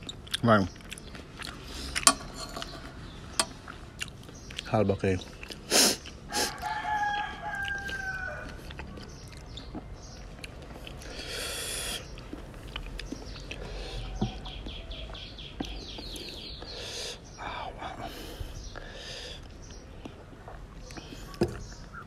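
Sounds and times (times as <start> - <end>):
rooster crowing: 6.3 - 8.7.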